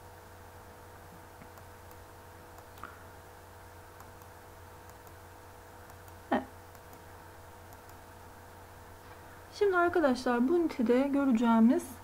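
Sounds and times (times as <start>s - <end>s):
faint electrical hum: 0.0s - 12.0s
computer mouse click: 4.0s - 5.2s, 5.8s - 7.1s, 7.7s - 8.0s.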